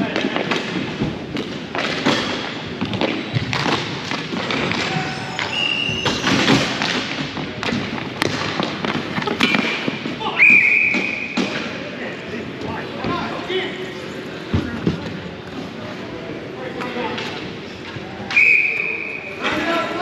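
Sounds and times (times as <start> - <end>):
voices in background: 9.1 - 20.0.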